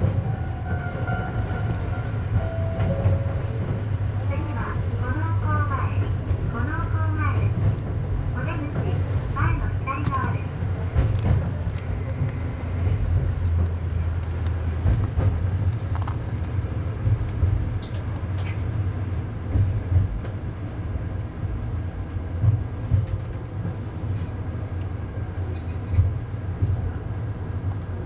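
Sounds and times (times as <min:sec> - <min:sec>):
railcar engine rumble: 0:00.0 - 0:28.0
faint high squeal: 0:13.3 - 0:14.2.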